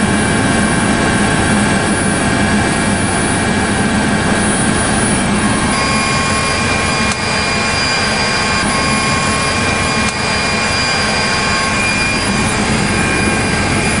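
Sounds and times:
helicopter engine and rotor running: 0:00.0 - 0:14.0.

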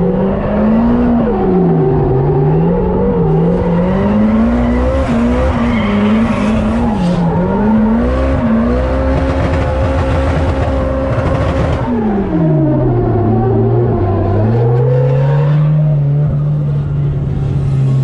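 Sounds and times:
car engine revving: 0:00.0 - 0:18.0
tyre squeal: 0:03.4 - 0:07.6.

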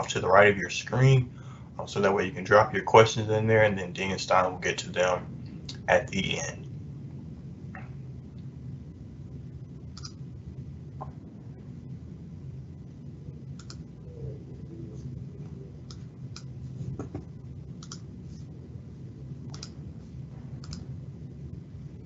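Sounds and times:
low room hum: 0:00.0 - 0:22.0
computer mouse clicks: 0:10.0 - 0:10.2, 0:13.6 - 0:13.8, 0:17.8 - 0:18.1, 0:19.5 - 0:19.8, 0:20.6 - 0:20.8.

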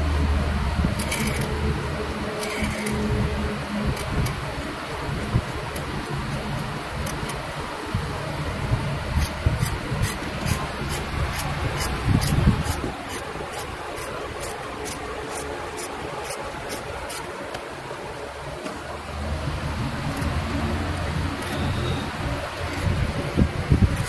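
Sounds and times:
steady background hiss: 0:00.0 - 0:24.0
metal tool scraping lacquer: 0:01.0 - 0:01.6, 0:02.2 - 0:03.2, 0:09.2 - 0:17.3, 0:21.4 - 0:23.0.

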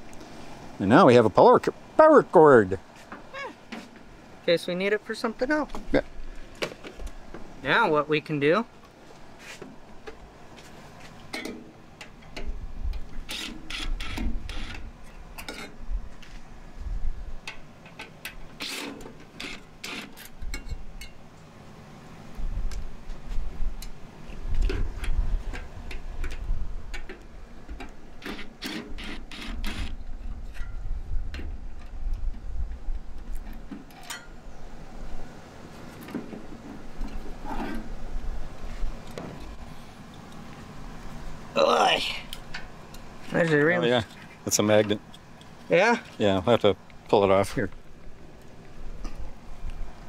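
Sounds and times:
tools clanking on sheet metal: 0:11.3 - 0:12.5.

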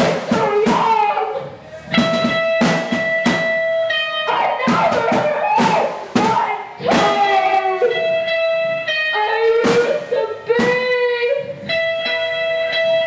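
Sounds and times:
drum and cymbal crashes: 0:01.9 - 0:03.6
electric guitar sustained notes: 0:07.4 - 0:13.0.

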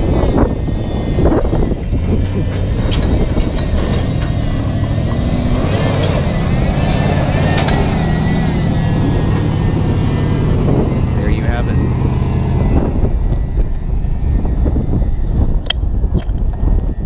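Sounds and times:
truck engine under load: 0:00.0 - 0:17.0
tyres rolling over rocks: 0:02.0 - 0:08.5.

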